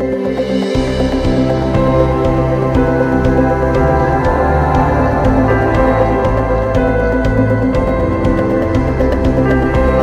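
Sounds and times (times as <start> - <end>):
light ticking beat: 0.0 - 10.0
synth music with bass line: 0.0 - 10.0.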